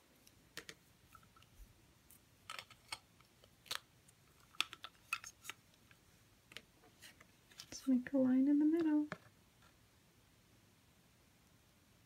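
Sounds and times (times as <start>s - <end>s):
plastic clicks and taps: 4.5s - 5.6s.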